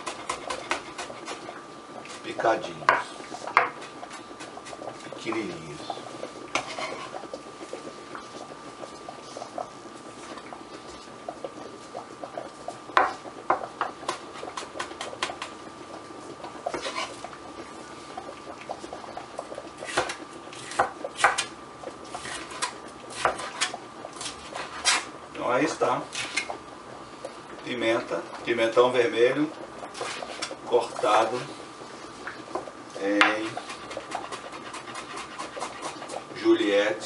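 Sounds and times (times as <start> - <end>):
knife chopping on cutting board: 0.0 - 1.4, 19.9 - 21.5, 22.2 - 25.0.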